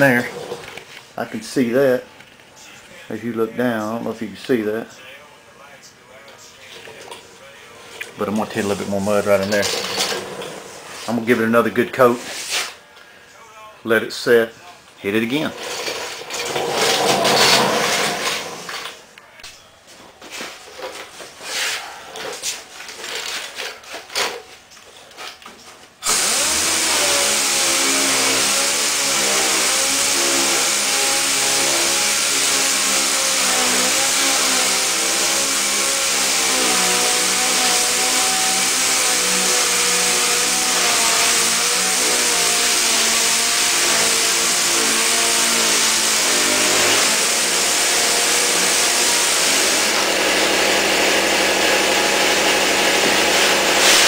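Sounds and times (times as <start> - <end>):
pneumatic sander whining: 8.4 - 11.0, 15.6 - 19.0, 26.0 - 54.0.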